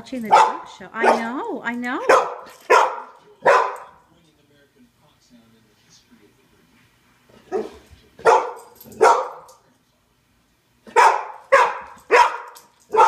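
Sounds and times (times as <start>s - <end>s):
dog barking loudly: 0.2s - 1.4s, 2.0s - 4.0s, 7.5s - 9.5s, 10.9s - 13.0s.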